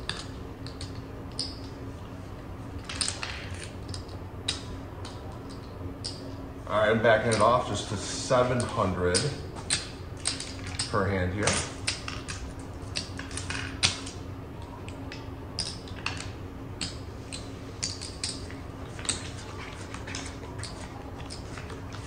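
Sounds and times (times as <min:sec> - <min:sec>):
casino chips clicking: 0:14.9 - 0:22.0.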